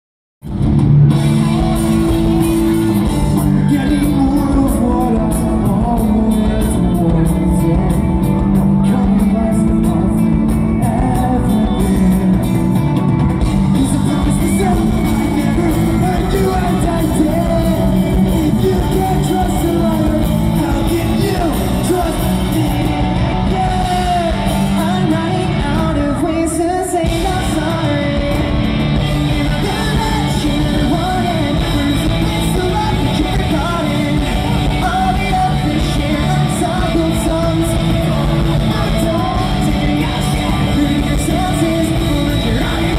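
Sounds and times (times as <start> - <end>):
electric guitars: 0.4 - 42.9
person singing lead vocals: 1.3 - 42.9.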